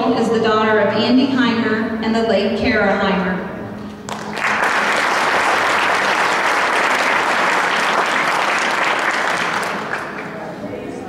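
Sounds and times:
crowd applauding: 0:04.1 - 0:10.6.

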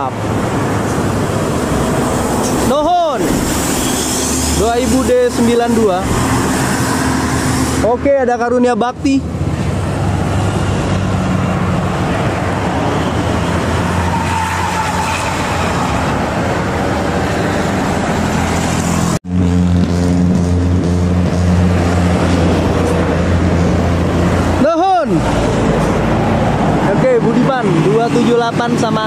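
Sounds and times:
road traffic passing: 0:00.0 - 0:29.0.

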